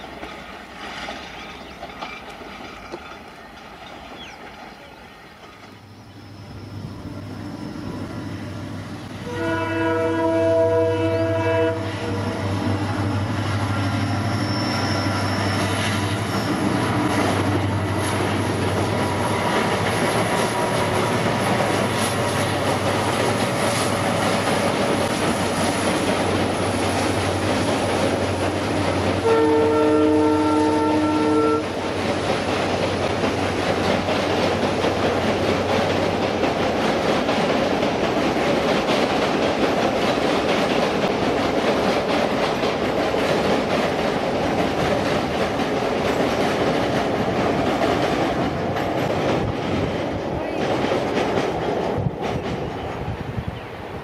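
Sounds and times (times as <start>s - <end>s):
train wheels rumbling and clattering: 0.0s - 54.0s
locomotive horn blasts: 9.2s - 12.6s, 29.2s - 31.7s.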